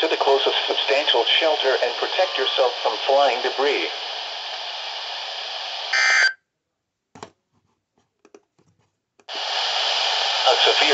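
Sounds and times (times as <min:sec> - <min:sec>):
radio static hiss: 0:00.0 - 0:06.4, 0:09.3 - 0:10.9
warbling data burst: 0:05.9 - 0:06.4.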